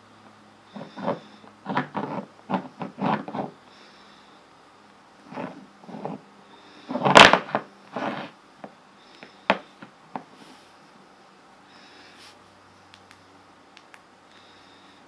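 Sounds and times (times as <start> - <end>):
phone scraping on table: 0.7 - 3.6, 5.2 - 6.2, 6.8 - 8.4.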